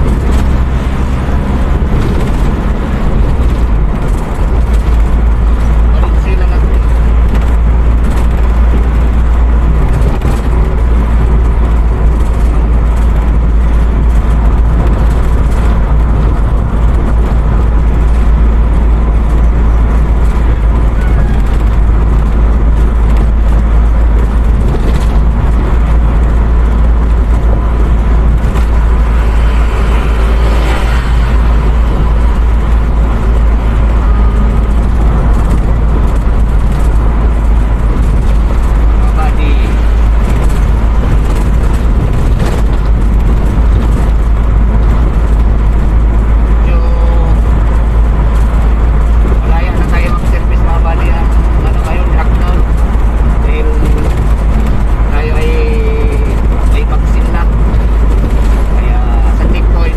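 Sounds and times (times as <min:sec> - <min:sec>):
vehicle driving on highway: 0:00.0 - 0:59.9.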